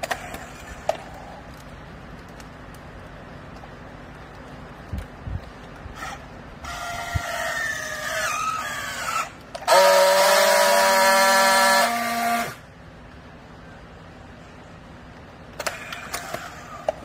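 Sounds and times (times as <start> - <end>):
strapping tool motor whine: 5.9 - 12.6
strapping tool welding buzz: 8.4 - 12.6.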